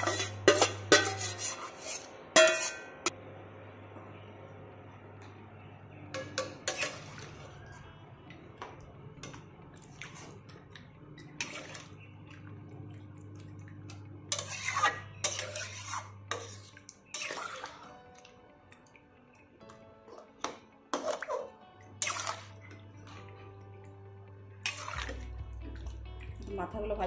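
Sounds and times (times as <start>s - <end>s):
spatula scraping metal pot: 0.0s - 3.1s, 6.4s - 7.5s, 11.2s - 12.0s, 14.3s - 18.0s, 20.9s - 22.6s, 24.6s - 25.2s
steady low hum: 0.0s - 16.8s
liquid sloshing: 21.0s - 23.4s, 24.7s - 26.6s.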